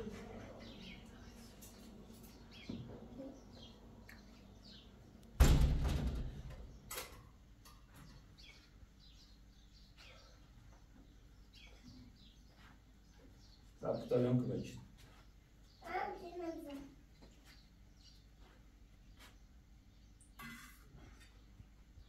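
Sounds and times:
loud thud: 5.4s - 6.5s
small bird chirps: 7.9s - 14.1s.

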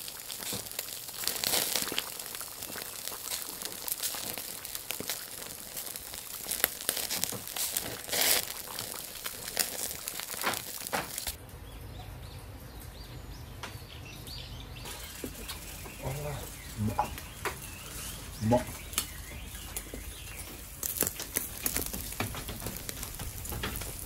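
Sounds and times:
food sizzling on a charcoal grill: 0.0s - 11.4s, 12.2s - 24.0s
fat spitting pops: 0.3s - 11.3s.

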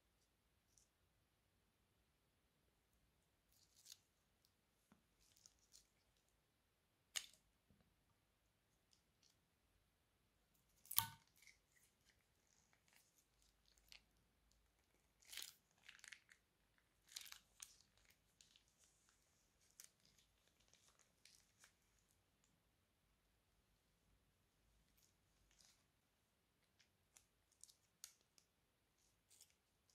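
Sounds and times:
plastic piping bag crinkling: 14.6s - 22.0s.

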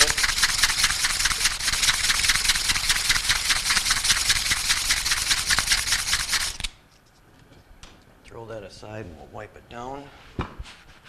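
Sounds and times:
emery cloth scrubbing metal shaft: 0.0s - 6.7s.

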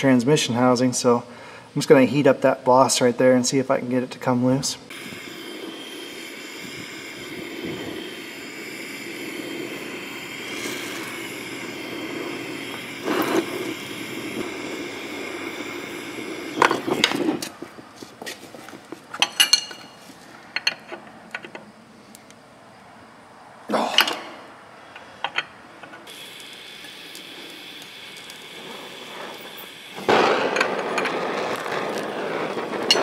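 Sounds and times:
torch flame hissing: 4.6s - 19.2s, 25.9s - 33.0s.

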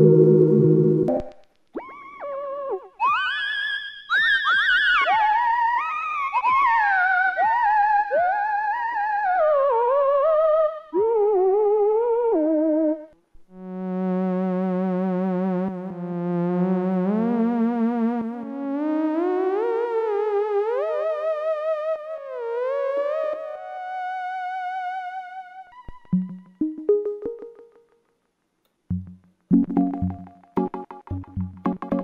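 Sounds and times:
synthesizer sliding notes with vibrato: 0.0s - 1.4s.

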